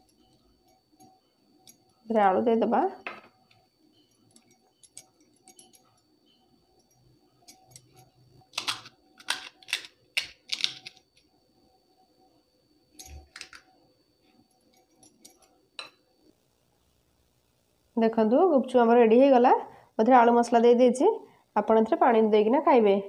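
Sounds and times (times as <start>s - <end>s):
fried shells cracking: 8.5s - 11.0s.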